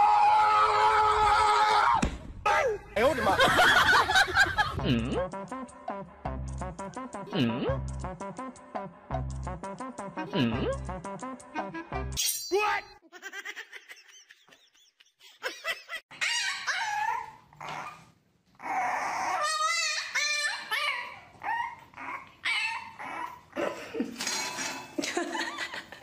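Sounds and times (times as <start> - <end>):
puppies whining and yipping: 16.1 - 23.6.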